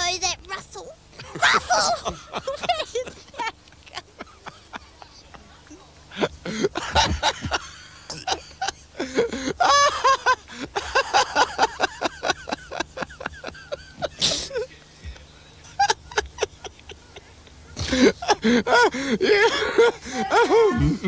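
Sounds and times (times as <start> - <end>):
voices chattering: 1.4 - 9.6, 12.8 - 21.0.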